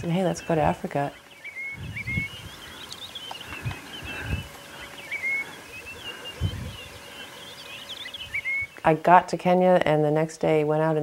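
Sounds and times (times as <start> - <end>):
birds chirping and whistling: 0.0 - 8.9.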